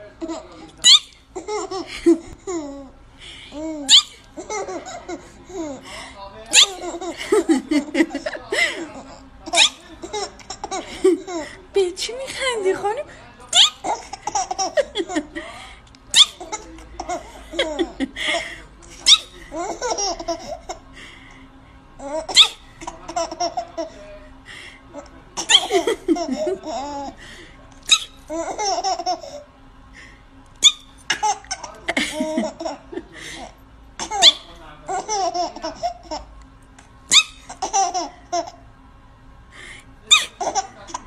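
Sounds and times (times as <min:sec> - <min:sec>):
toddler giggling: 0:03.5 - 0:05.8, 0:06.6 - 0:11.5, 0:16.2 - 0:18.4, 0:25.0 - 0:27.1, 0:31.1 - 0:36.3, 0:37.5 - 0:38.6, 0:40.1 - 0:41.0
high squealing laugh: 0:25.4 - 0:26.7, 0:40.1 - 0:40.8.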